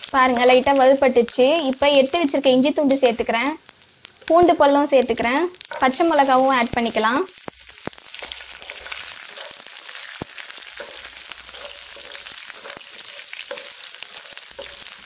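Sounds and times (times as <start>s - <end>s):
hot oil sizzling in a frying pan: 0.0s - 15.0s
wooden spatula stirring: 8.1s - 15.0s.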